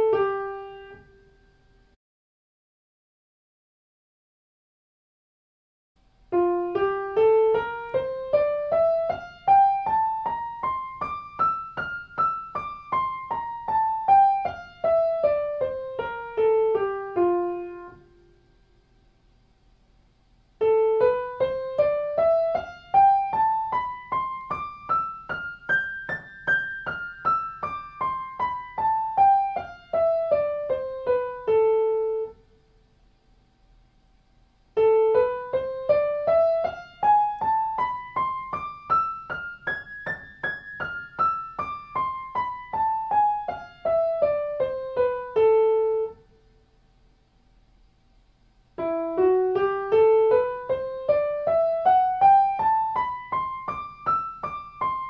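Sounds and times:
piano playing scales: 0.0 - 1.7, 6.3 - 18.3, 20.6 - 32.6, 34.7 - 46.4, 48.7 - 55.0.

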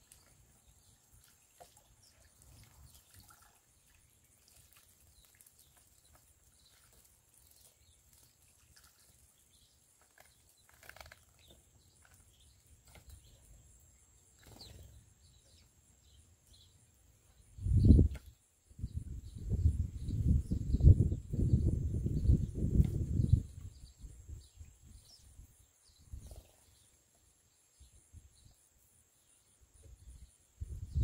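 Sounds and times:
water trickling and splashing: 0.0 - 13.3
sparrows chirping: 0.0 - 31.0.

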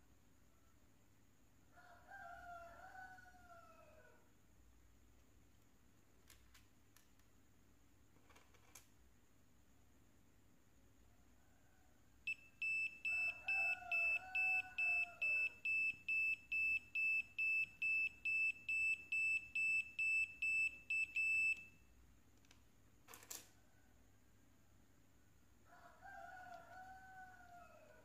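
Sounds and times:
buzzer beeping high steady tone: 12.3 - 21.8.

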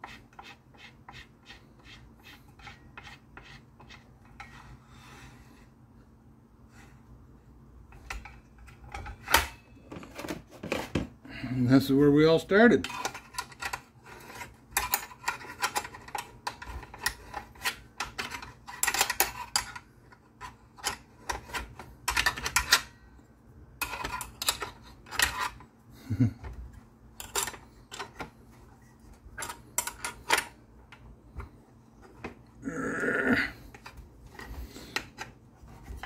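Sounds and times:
metal parts clicking and tapping: 14.8 - 22.9, 27.2 - 28.3, 29.4 - 31.0.

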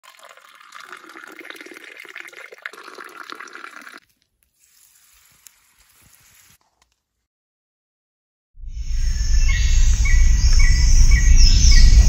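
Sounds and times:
drink pouring into glass: 0.0 - 4.0.

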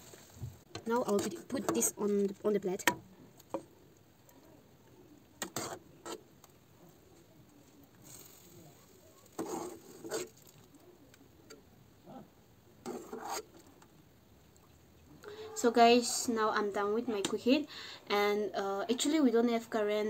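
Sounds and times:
metal spoon scraping saucepan: 1.0 - 2.0, 5.4 - 6.2, 9.3 - 10.4, 12.8 - 13.5.

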